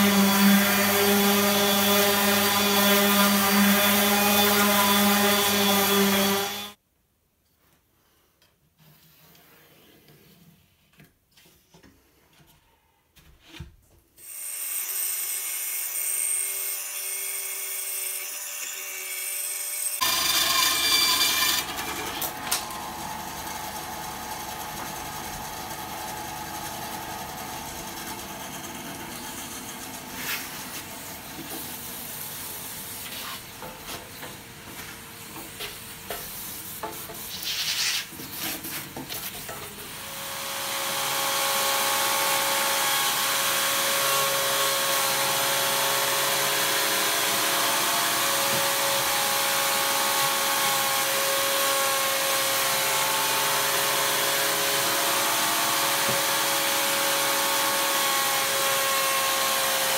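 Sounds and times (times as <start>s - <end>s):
band saw running: 20.0s - 31.2s, 40.0s - 59.9s.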